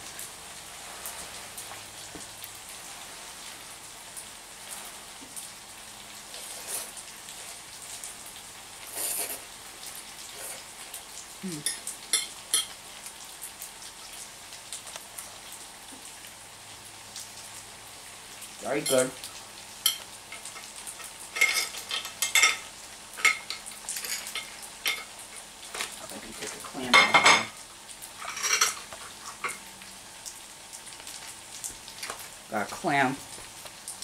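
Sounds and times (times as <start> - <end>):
steady hiss: 0.0 - 34.0
fork clinking and scraping on plate: 19.9 - 25.1, 28.2 - 28.8.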